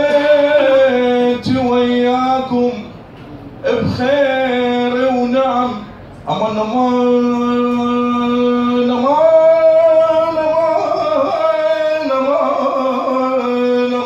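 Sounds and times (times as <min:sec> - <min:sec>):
man singing into microphone: 0:00.0 - 0:02.9, 0:03.6 - 0:14.0.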